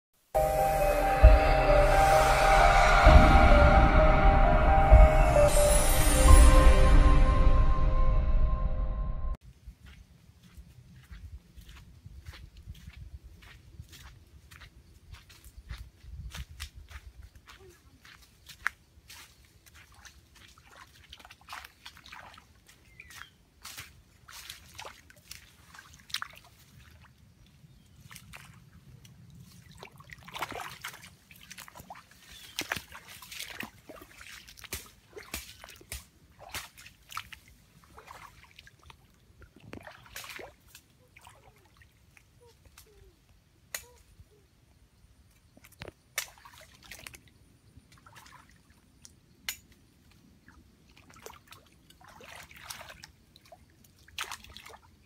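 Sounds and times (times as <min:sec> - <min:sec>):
feet sloshing in muddy water: 0:09.8 - 0:43.1, 0:45.5 - 0:49.2, 0:50.1 - 0:55.0.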